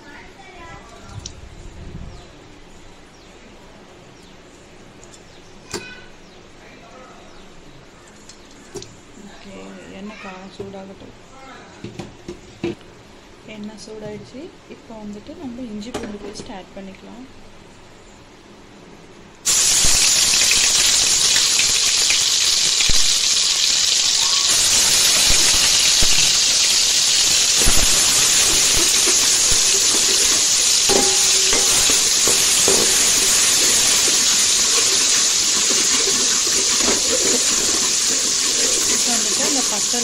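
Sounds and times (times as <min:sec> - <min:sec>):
paste sizzling in hot oil: 0:19.4 - 0:40.0.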